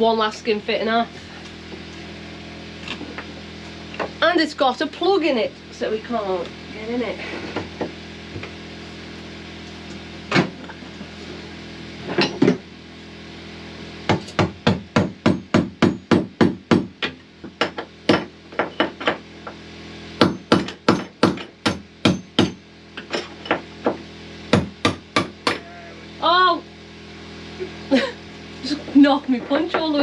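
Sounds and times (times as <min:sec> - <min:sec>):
hammer striking steel punch: 0:20.2 - 0:22.6.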